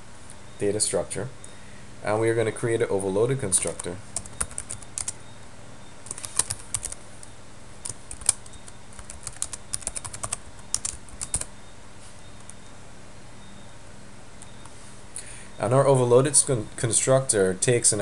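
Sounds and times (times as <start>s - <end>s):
typing on computer keyboard: 3.6s - 5.2s, 6.1s - 7.0s, 7.8s - 11.5s.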